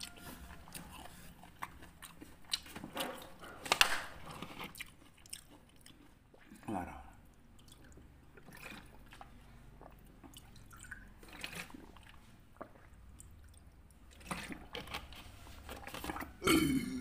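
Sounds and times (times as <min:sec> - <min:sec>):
water sloshing in bottle: 0:10.2 - 0:16.4
man gulping water: 0:15.9 - 0:17.0.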